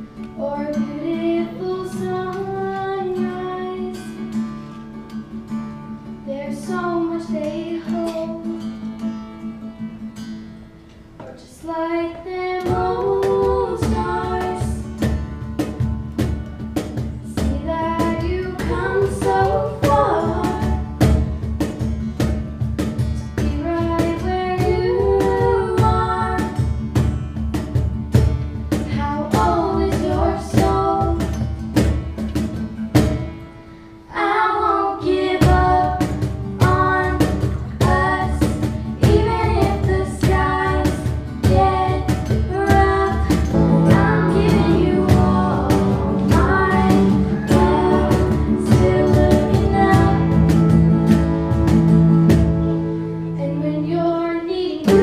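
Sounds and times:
acoustic guitar strumming: 0.0 - 55.0
girls singing: 0.3 - 4.3, 6.3 - 8.6, 11.2 - 15.4, 17.2 - 21.2, 23.4 - 26.7, 28.8 - 31.6, 34.1 - 55.0
steady beat: 40.9 - 52.9.

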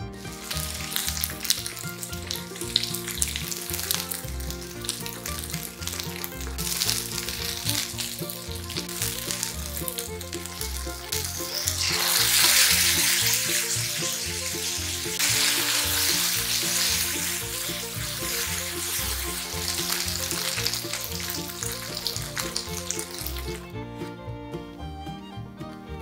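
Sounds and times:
spatula tossing food in pan: 0.0 - 23.6
chicken sizzling in frying pan: 0.0 - 23.7.

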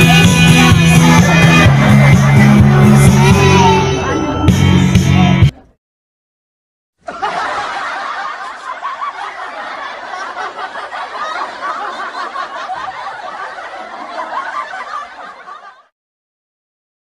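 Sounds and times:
group of people laughing: 7.0 - 15.9.

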